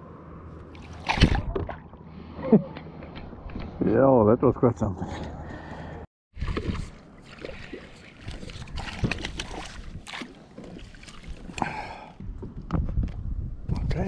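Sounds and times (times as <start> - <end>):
water sloshing: 0.6 - 2.1, 6.4 - 12.1.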